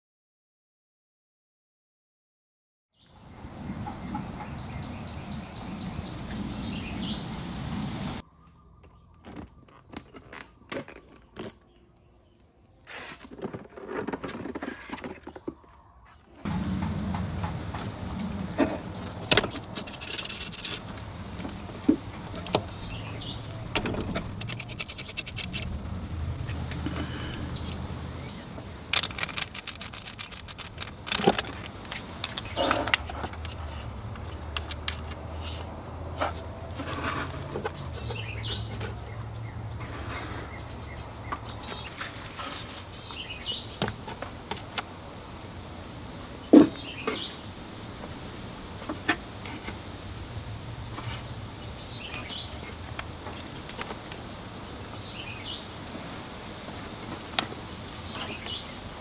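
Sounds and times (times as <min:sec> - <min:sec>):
metal tools clinking: 0:24.3 - 0:25.7, 0:28.9 - 0:33.2.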